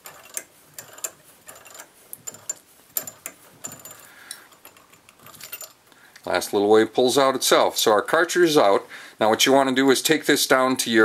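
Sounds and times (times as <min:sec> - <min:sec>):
tool squeaking: 0:00.0 - 0:05.8
metal clicks: 0:00.0 - 0:06.3.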